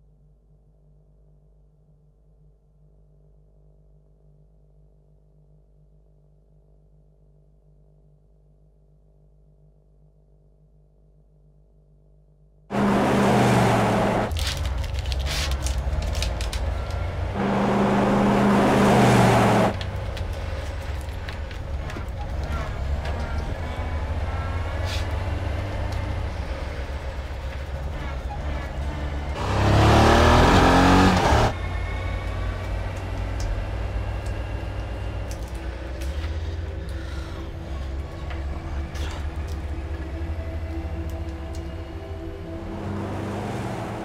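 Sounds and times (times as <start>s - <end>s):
ambulance engine and road rumble: 12.7s - 44.0s.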